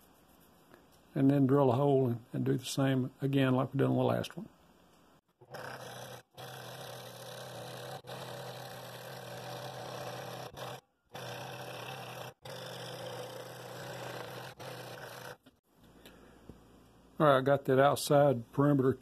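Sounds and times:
scroll saw cutting wood: 5.4s - 15.6s.

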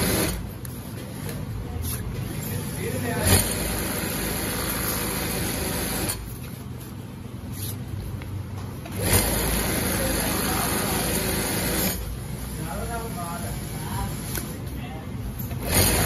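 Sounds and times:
sewing machine stitching fabric: 2.2s - 6.2s, 8.9s - 12.0s, 15.4s - 16.0s.

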